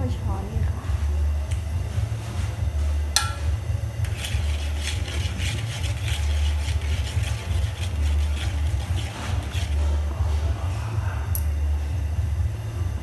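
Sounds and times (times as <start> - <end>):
metallic clink on pot: 3.2 - 3.6
utensil scraping metal pot: 3.2 - 10.5.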